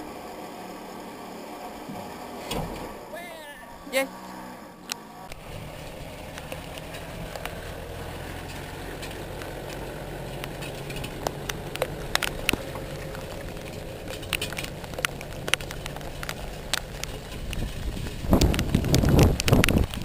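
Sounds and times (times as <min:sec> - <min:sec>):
car engine running at low revs: 0:00.0 - 0:20.0
sharp clicks and knocks: 0:04.8 - 0:07.8, 0:08.4 - 0:20.0.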